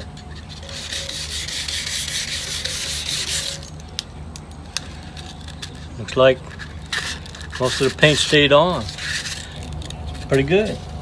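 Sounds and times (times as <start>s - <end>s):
sandpaper rubbing on metal tank: 0.3s - 3.7s, 6.5s - 9.6s.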